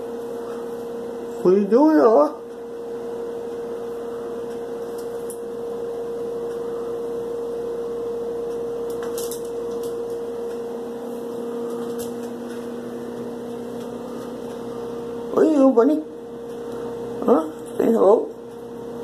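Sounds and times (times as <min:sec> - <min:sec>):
electrical hum: 0:00.0 - 0:19.0
lower hum tone: 0:00.0 - 0:19.0.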